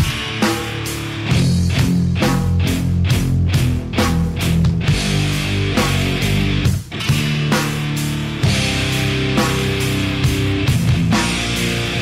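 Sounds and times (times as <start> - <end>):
heavy rock music: 0.0 - 12.0.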